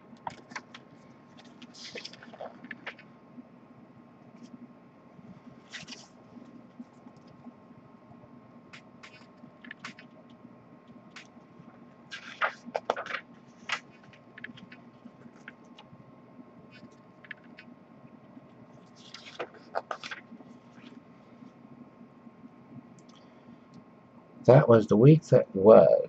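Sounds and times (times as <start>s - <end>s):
faint steady hum: 0.0s - 26.0s
paper crackling and taps: 0.2s - 3.1s, 12.1s - 15.9s, 19.0s - 21.0s
paper pages rustling: 0.3s - 3.1s, 5.7s - 6.2s, 12.1s - 15.6s, 18.9s - 21.0s.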